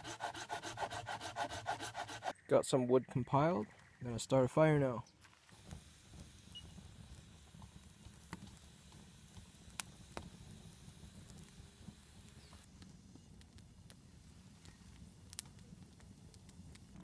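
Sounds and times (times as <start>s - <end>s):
campfire crackling and popping: 5.2s - 17.0s
low steady fire rumble: 5.5s - 17.0s.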